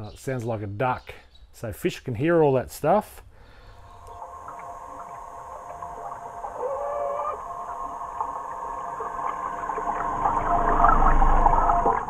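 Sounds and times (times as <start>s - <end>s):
crackling water noise: 3.8s - 12.0s
underwater electric motor whine: 3.8s - 12.0s.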